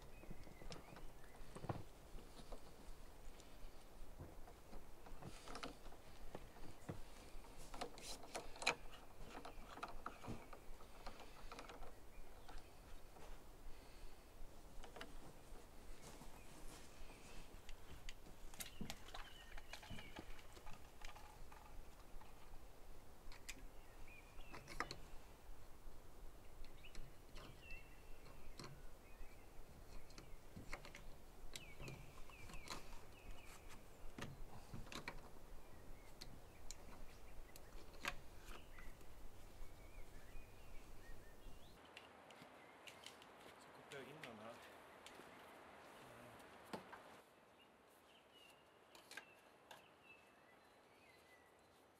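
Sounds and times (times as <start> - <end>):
plastic pipe fittings clicking: 7.7 - 12.7
faint bird chirps: 26.4 - 46.3, 47.3 - 51.9.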